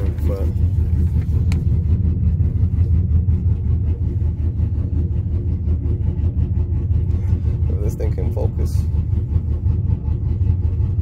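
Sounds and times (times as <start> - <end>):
truck engine idling: 0.0 - 11.0.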